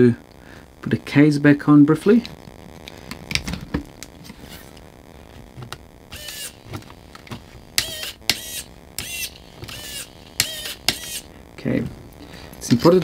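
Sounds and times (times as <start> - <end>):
small servos whirring: 6.1 - 11.3.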